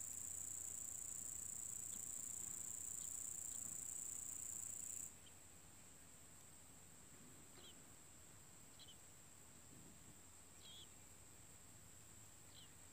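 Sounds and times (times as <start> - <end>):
crickets trilling: 0.0 - 5.1.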